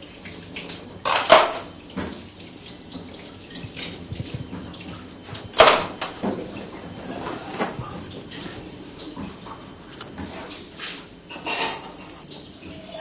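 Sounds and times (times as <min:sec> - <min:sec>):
tap running into sink: 0:00.6 - 0:02.3, 0:02.9 - 0:10.4
dishes clinking: 0:01.0 - 0:01.7, 0:05.5 - 0:06.4, 0:11.3 - 0:13.0.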